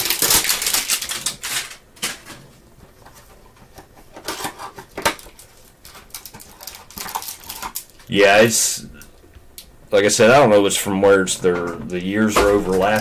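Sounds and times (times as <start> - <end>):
packaging crinkling: 0.0 - 2.4, 4.2 - 8.1.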